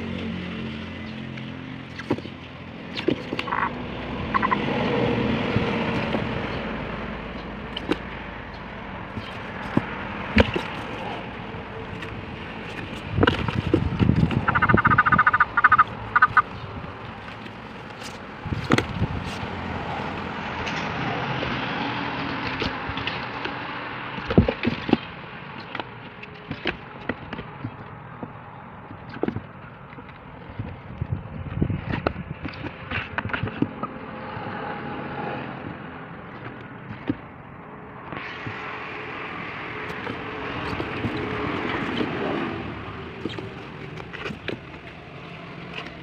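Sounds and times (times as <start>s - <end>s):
toad trilled call: 3.4s - 4.6s, 14.4s - 16.6s.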